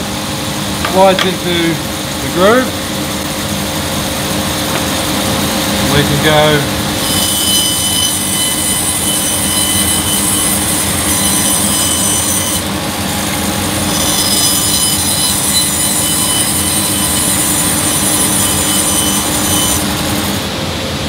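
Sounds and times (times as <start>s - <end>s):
bandsaw cutting wood: 5.8s - 20.4s.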